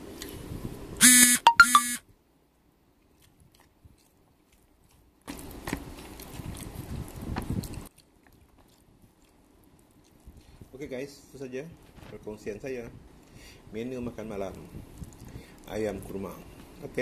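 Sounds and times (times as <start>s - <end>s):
short pitched toot: 1.0s - 2.0s
close-up chewing: 3.0s - 10.8s, 14.5s - 16.8s.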